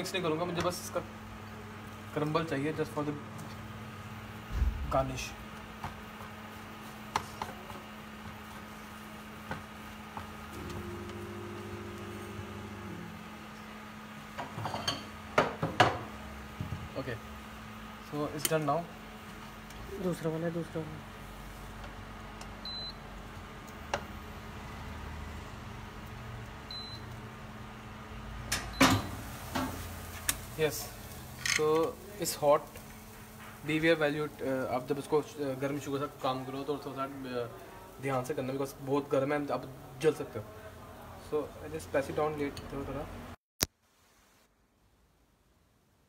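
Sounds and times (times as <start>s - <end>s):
induction cooktop hum: 0.0s - 46.0s
pan and utensils clattering: 14.4s - 16.0s.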